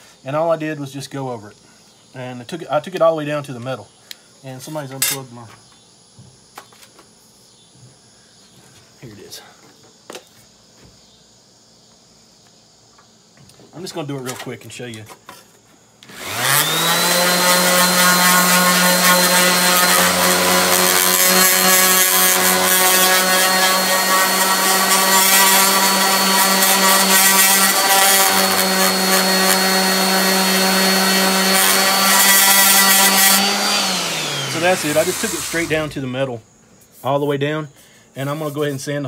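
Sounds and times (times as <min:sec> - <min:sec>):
orbital sander sanding metal: 0:16.1 - 0:36.3.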